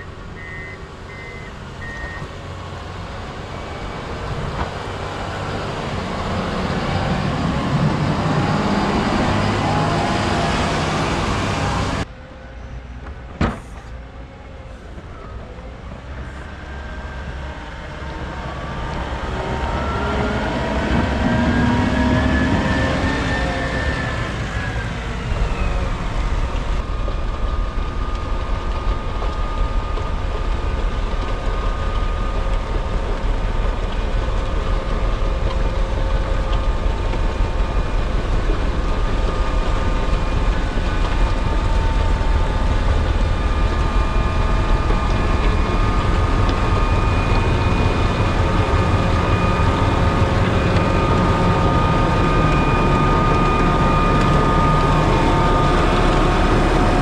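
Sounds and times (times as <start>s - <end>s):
diesel engine running: 0.0s - 12.1s, 14.7s - 57.0s
steady machine whine: 16.4s - 57.0s.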